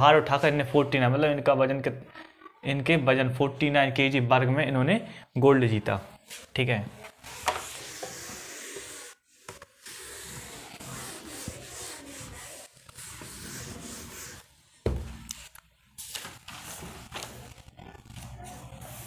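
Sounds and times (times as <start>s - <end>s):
handwriting scratching: 7.2s - 14.5s, 16.4s - 19.0s
thump: 14.8s - 15.2s.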